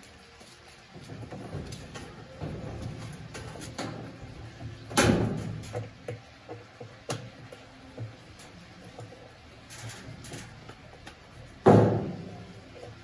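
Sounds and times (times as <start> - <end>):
parts knocking inside washing machine tub: 0.9 - 8.4, 11.5 - 13.0.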